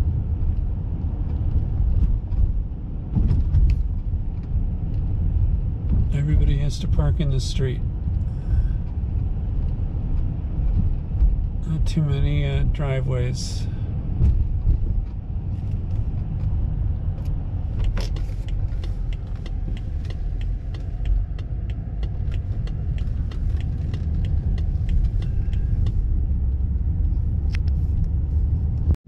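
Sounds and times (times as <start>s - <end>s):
car road and engine rumble: 0.0s - 29.0s
rapid light ticking: 17.8s - 26.4s.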